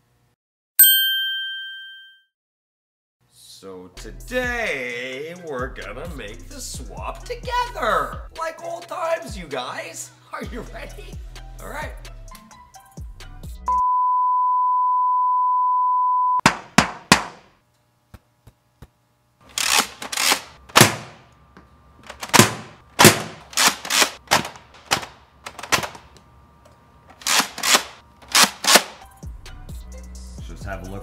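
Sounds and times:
loud high beep: 13.7 - 16.4
toy blaster firing shots: 19.5 - 21.2, 22.2 - 25.1, 27.2 - 29.0.

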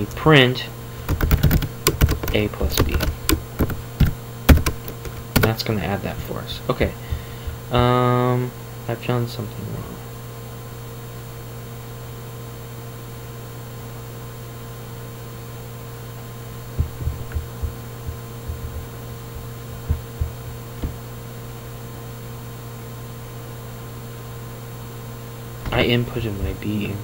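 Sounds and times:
electrical mains hum: 0.0 - 27.0
soft low thumps: 6.9 - 7.7, 16.7 - 21.2.

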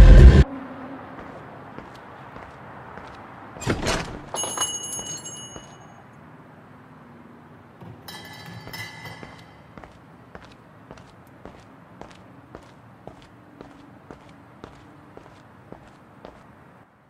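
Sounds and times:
shop door opening thunk: 3.6 - 4.4
metallic door chime ringing: 3.9 - 6.0, 8.0 - 9.8.

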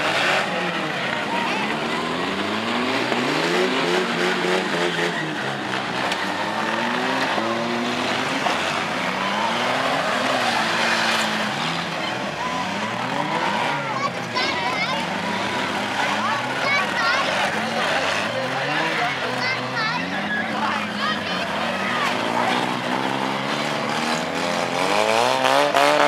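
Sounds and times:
car engines revving: 0.0 - 26.0.

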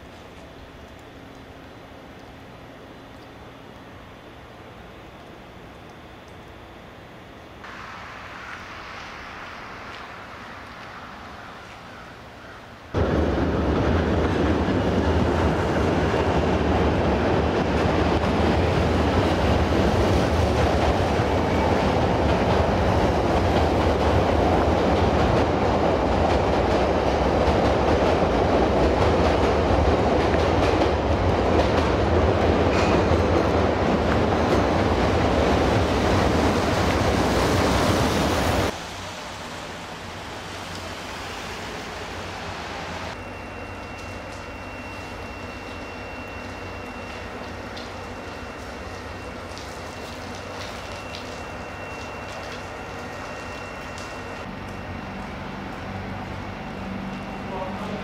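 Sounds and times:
train rumbling on elevated track: 7.6 - 50.6, 51.5 - 58.0
wheel clatter on rails: 13.5 - 37.2.

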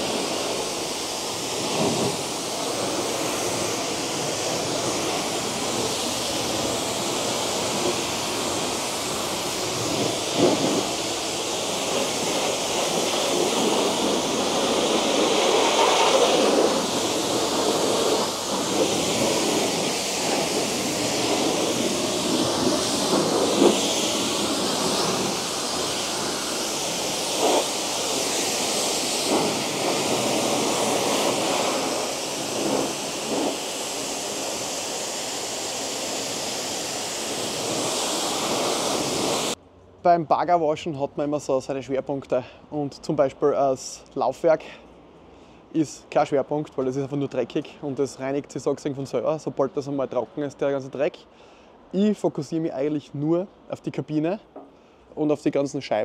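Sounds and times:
pressure washer spraying: 0.0 - 39.6.

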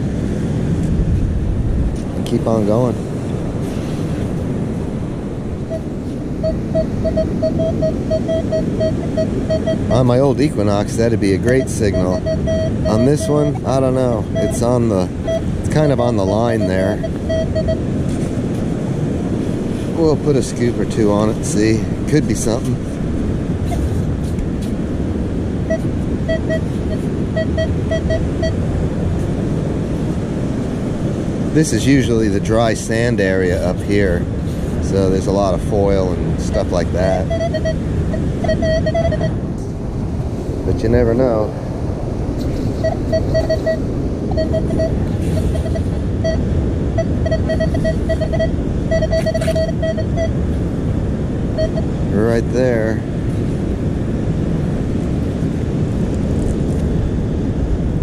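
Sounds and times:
wind rumble on microphone: 0.0 - 58.0
metal detector beeps: 5.7 - 17.9, 25.7 - 28.6, 36.0 - 39.4, 42.7 - 50.6, 51.6 - 52.0.

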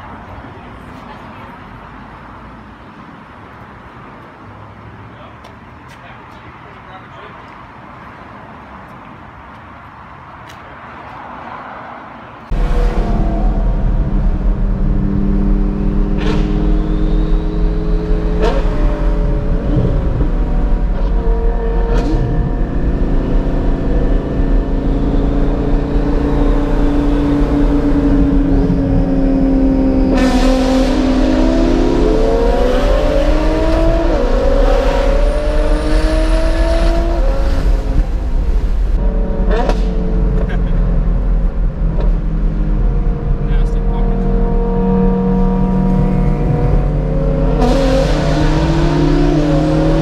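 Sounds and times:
road and wind noise: 0.0 - 50.0
car engine revving: 12.5 - 50.0.

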